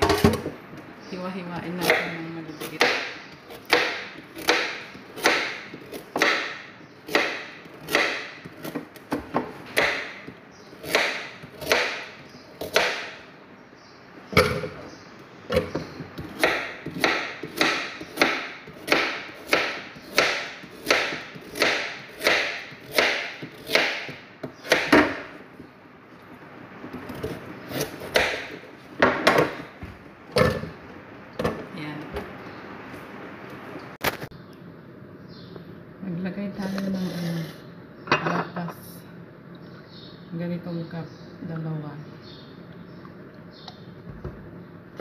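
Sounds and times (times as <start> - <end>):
knife chopping on a board: 1.8 - 13.2, 15.5 - 25.3, 27.1 - 30.6.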